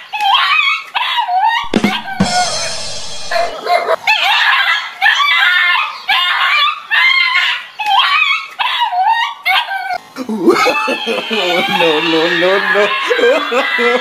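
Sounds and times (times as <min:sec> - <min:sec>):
small dog barking and yelping: 0:00.3 - 0:10.0.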